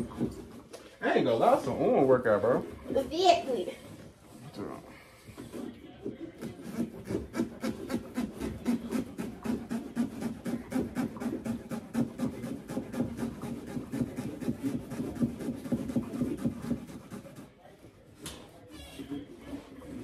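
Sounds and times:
knife sawing through pumpkin: 6.4 - 17.5.

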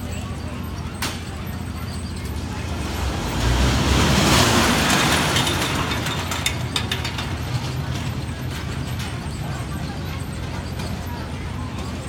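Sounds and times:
roller coaster rumble: 0.0 - 12.0
rattling clicks of track: 4.3 - 9.4.

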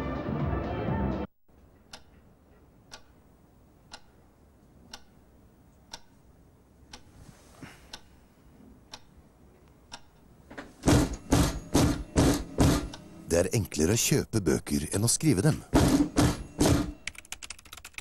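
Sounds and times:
wall clock ticking: 1.7 - 6.3, 8.9 - 9.2, 9.8 - 13.1
manual typewriter strikes: 10.8 - 13.2, 15.7 - 18.0.

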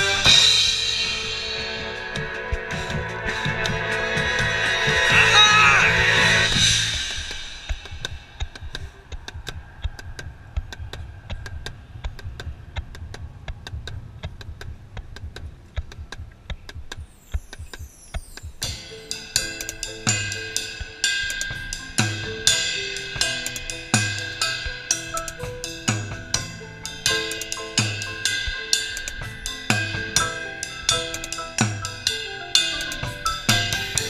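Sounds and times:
drum kit and cymbals: 0.0 - 34.0
mallet keyboards: 14.5 - 34.0.

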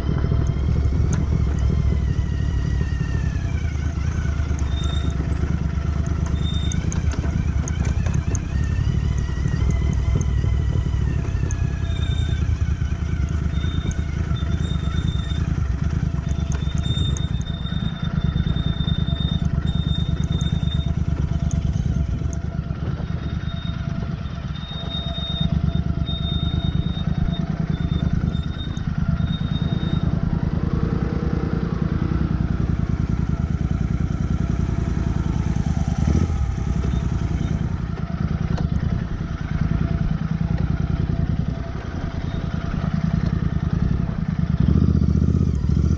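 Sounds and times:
motorcycle engine at low revs: 0.0 - 45.9.

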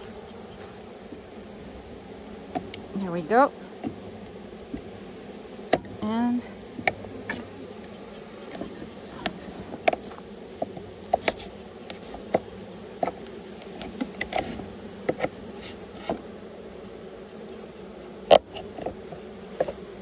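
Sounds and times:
honeybees buzzing: 0.0 - 20.0
clicks and taps of wood and tool: 8.5 - 15.4.

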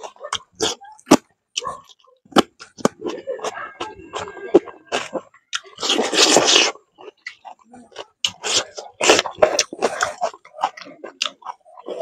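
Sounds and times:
lip smacks while chewing: 4.9 - 12.0.

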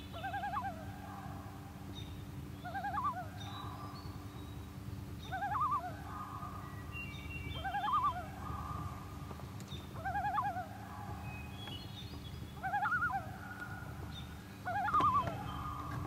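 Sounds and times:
loon yodeling: 0.2 - 1.0, 2.6 - 3.4, 5.3 - 6.0, 7.6 - 8.3, 10.0 - 10.7, 12.6 - 13.3, 14.6 - 16.0.

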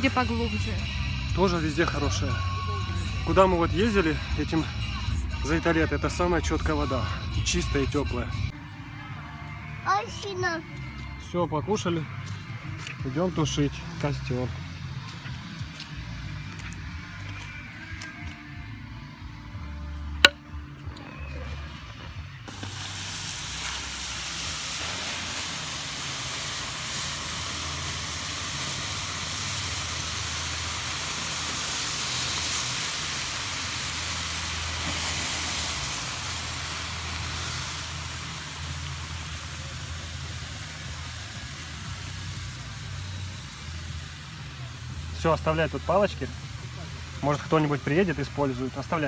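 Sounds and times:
embers hissing and sizzling: 11.0 - 18.6, 22.4 - 49.0.

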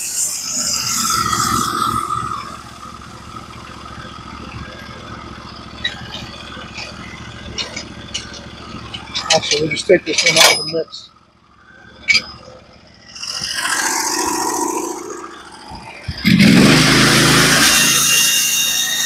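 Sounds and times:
gas engine starting and idling: 1.1 - 17.9.

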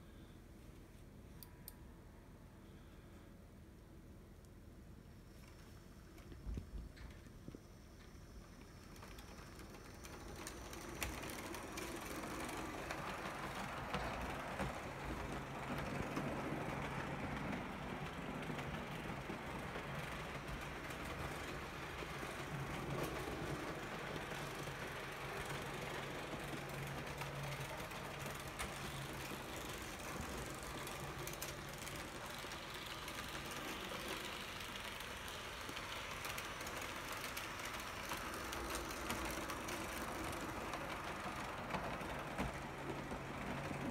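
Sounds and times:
model train wheels rattling: 6.9 - 43.9.

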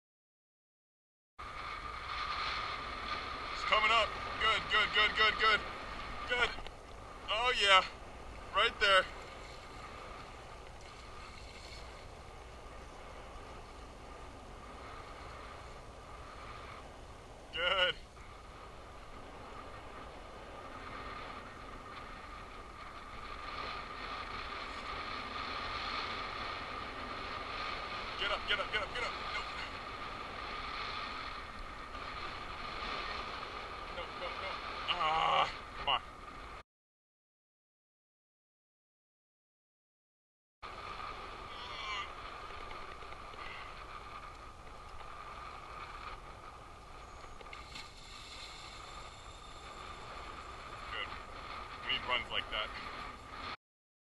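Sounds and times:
high mechanical whine: 1.4 - 36.6, 40.6 - 53.6
steady hum: 1.4 - 36.6, 40.7 - 53.6
water noise: 1.4 - 36.6, 40.6 - 53.6
background hiss: 40.8 - 53.2.

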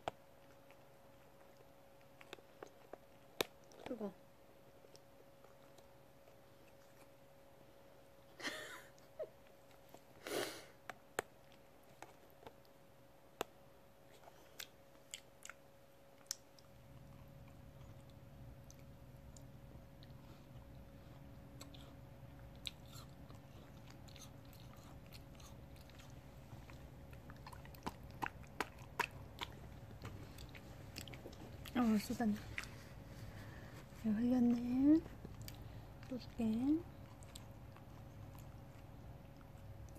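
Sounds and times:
dog licking and smacking: 21.6 - 31.8.

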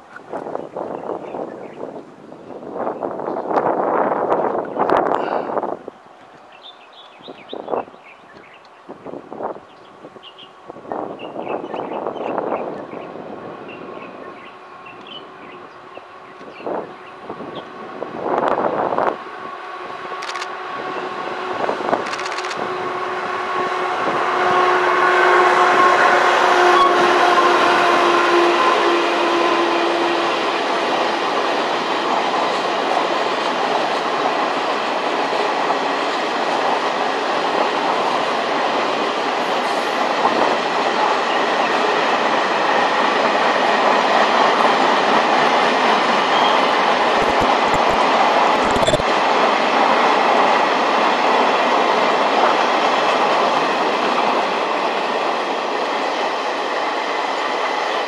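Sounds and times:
train wheels rumbling on rails: 7.2 - 58.0
locomotive humming whine: 12.3 - 55.4.

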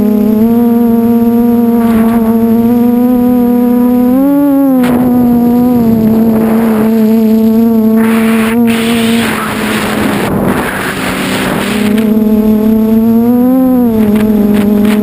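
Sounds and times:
drone motors humming: 0.0 - 15.0
wind rushing over microphone: 4.8 - 13.1.

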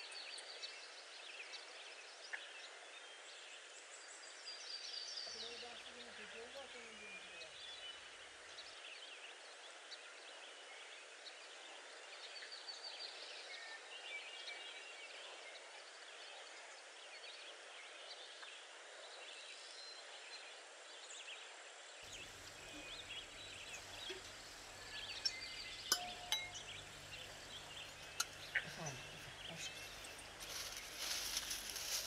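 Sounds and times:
small birds chirping: 0.0 - 16.2, 22.0 - 32.0
steady soft hiss: 22.0 - 32.0.

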